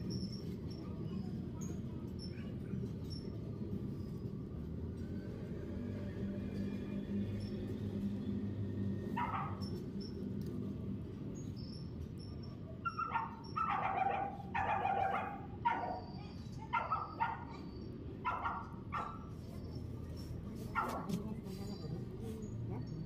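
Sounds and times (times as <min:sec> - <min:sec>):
dog barking: 0:09.2 - 0:09.7, 0:12.8 - 0:19.3, 0:20.7 - 0:21.1.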